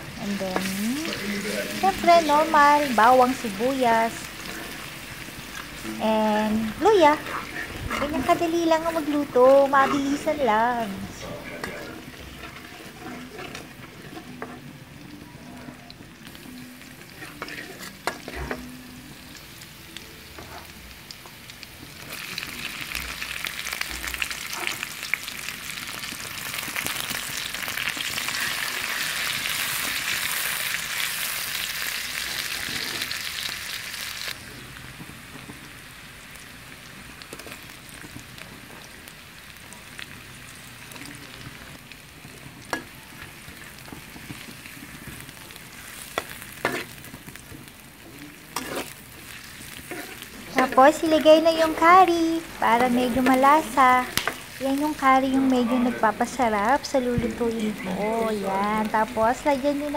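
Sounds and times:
food sizzling in hot oil: 0.0s - 59.9s
metal spatula scraping wok: 0.6s - 14.8s, 17.0s - 18.7s, 32.3s - 33.2s, 42.6s - 47.5s, 48.5s - 56.6s.

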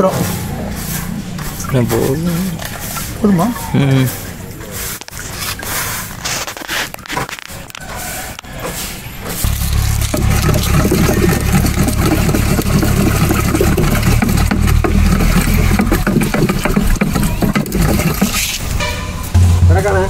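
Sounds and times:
water sloshing and knocking: 9.4s - 19.8s
steady low rumble: 9.4s - 20.0s.

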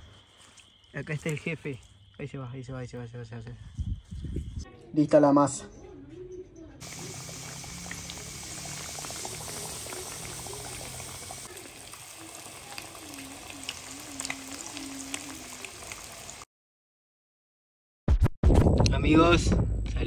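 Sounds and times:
frogs and insects chorus: 0.0s - 4.6s, 6.8s - 16.4s.

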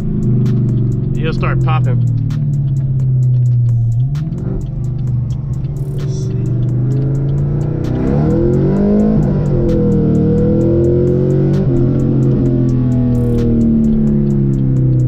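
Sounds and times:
background music: 0.0s - 15.0s
car engine accelerating: 0.0s - 15.0s.

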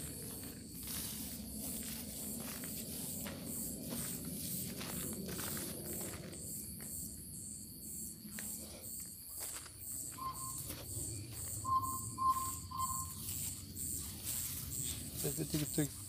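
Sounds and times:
footsteps rustling through dry grass: 0.0s - 6.6s, 9.2s - 11.6s, 12.3s - 16.0s
crickets chirping: 0.0s - 16.0s
short electronic beeps: 10.2s - 10.7s, 11.6s - 13.2s.

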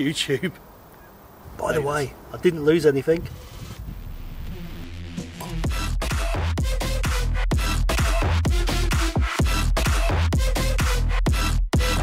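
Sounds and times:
electronic dance music: 4.2s - 12.0s.

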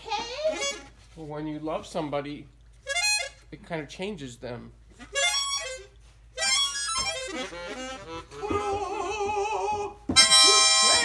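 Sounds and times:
harmonica playing: 0.2s - 1.0s, 2.8s - 3.5s, 4.9s - 11.0s.

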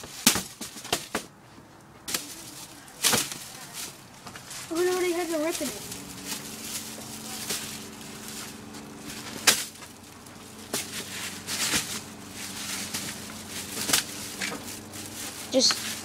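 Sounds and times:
steady low hum: 0.0s - 16.0s
lamp shade tearing: 5.6s - 16.0s.

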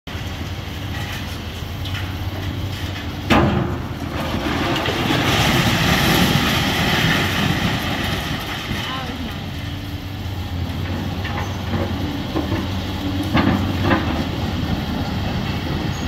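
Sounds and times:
excavator diesel engine running: 0.1s - 16.0s
rubble crumbling and falling: 2.6s - 9.5s.

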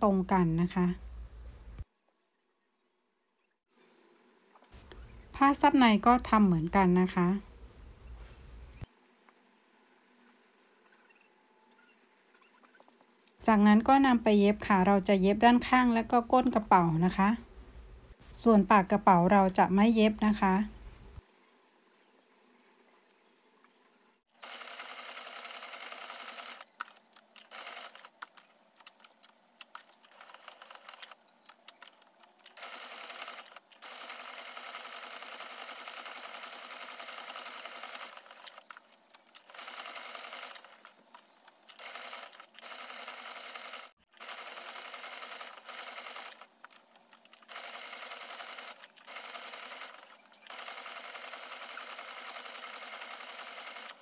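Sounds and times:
sewing machine stitching: 24.4s - 31.2s, 31.8s - 41.0s, 41.7s - 54.0s.

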